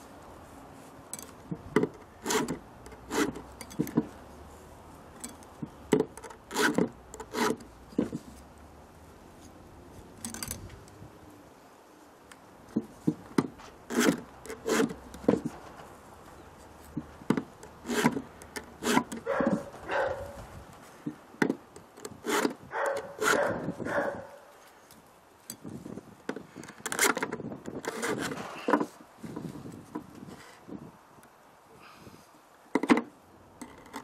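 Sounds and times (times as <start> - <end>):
file rasping on chainsaw chain: 2.2 - 4.0, 6.2 - 7.7, 13.9 - 15.0, 17.6 - 19.6, 22.0 - 23.7, 27.8 - 28.5.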